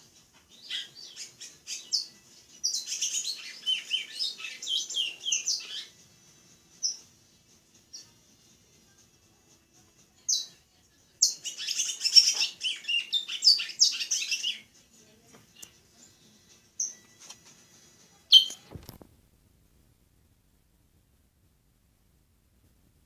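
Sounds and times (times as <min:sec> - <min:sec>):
songbird chirping and twittering: 0:00.1 - 0:08.2, 0:10.2 - 0:10.6, 0:11.2 - 0:14.8, 0:15.5 - 0:17.2, 0:18.3 - 0:18.7.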